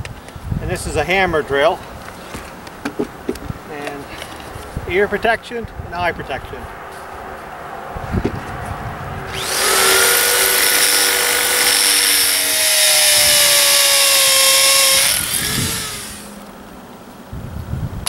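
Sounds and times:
hammer drill boring into concrete: 9.3 - 16.4.

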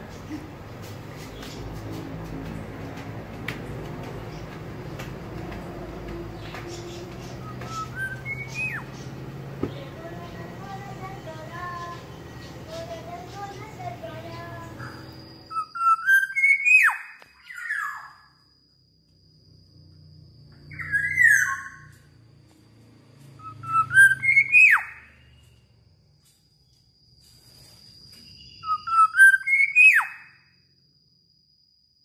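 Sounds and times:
bird singing fluty whistles: 6.8 - 9.2, 14.4 - 18.3, 20.6 - 21.9, 23.4 - 25.6, 28.1 - 30.4.

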